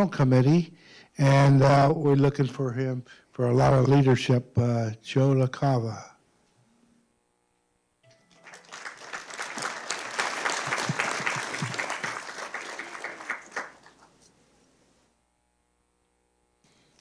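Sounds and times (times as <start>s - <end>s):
audience applause: 8.3s - 14.2s.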